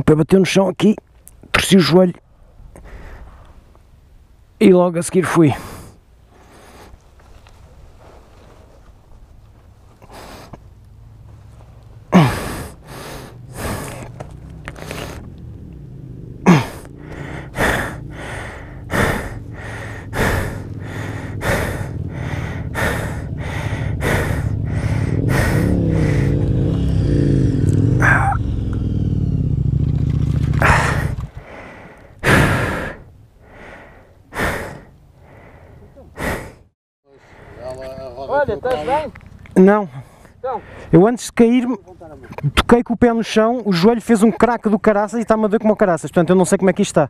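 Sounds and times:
man breathing heavily and groaning: 0:05.5 - 0:07.0, 0:10.0 - 0:10.6, 0:12.1 - 0:15.3, 0:16.4 - 0:28.6, 0:30.6 - 0:38.0, 0:39.8 - 0:41.0
engine running: 0:09.5 - 0:32.9.

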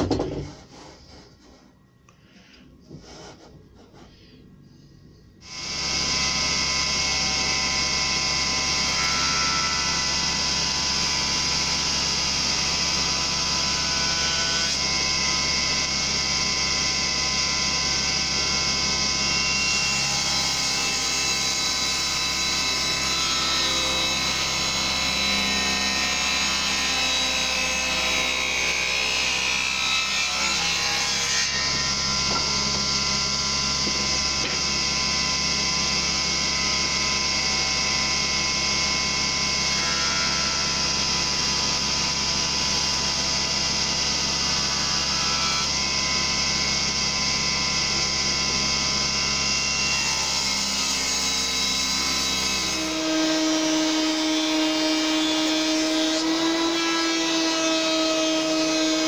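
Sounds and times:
table saw cutting wood: 0:05.4 - 0:59.0.

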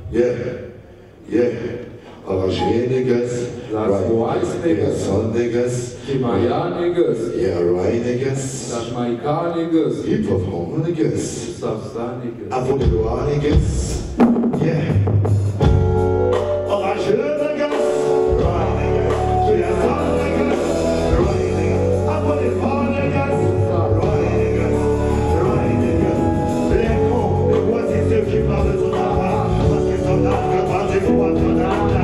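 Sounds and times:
reggae band playing: 0:12.8 - 0:32.0
man singing: 0:16.6 - 0:32.0.

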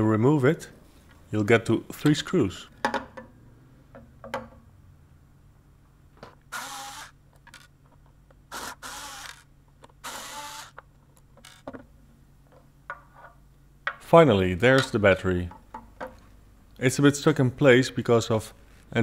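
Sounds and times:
cordless screwdriver running: 0:06.5 - 0:07.7, 0:08.5 - 0:10.8.

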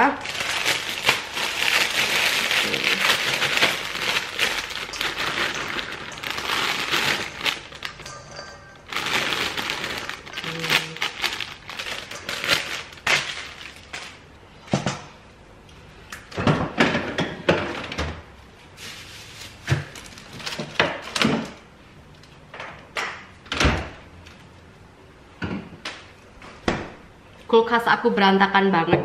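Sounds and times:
plastic bag rustling: 0:00.0 - 0:14.3, 0:18.7 - 0:21.2.

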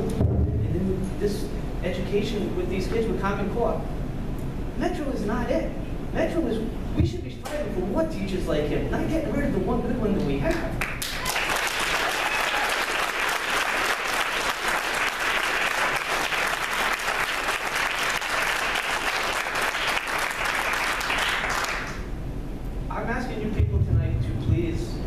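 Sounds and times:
audience applauding: 0:10.8 - 0:22.0.

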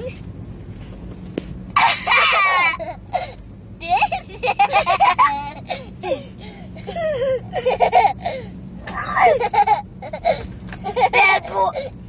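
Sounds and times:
boys laughing: 0:01.8 - 0:08.4, 0:09.1 - 0:11.8.

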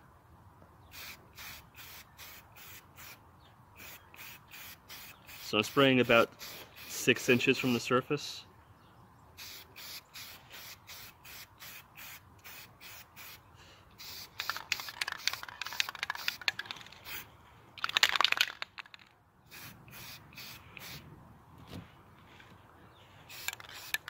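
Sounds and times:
aerosol spray can hissing: 0:01.0 - 0:03.2, 0:03.8 - 0:05.8, 0:09.4 - 0:13.4, 0:14.0 - 0:17.2, 0:19.5 - 0:21.0, 0:23.3 - 0:24.0.

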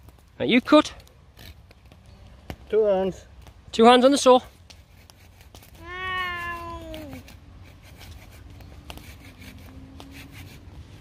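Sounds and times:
hand saw rasping through branch: 0:04.1 - 0:11.0.

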